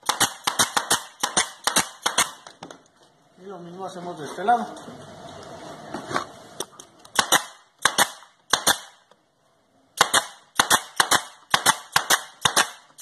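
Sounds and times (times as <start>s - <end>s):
nail gun firing: 0.0s - 2.6s, 7.1s - 9.0s, 10.0s - 13.0s.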